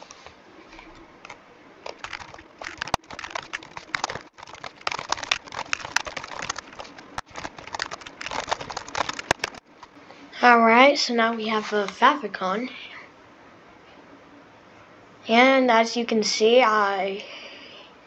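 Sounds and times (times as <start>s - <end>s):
rapid keyboard typing: 1.2s - 9.7s.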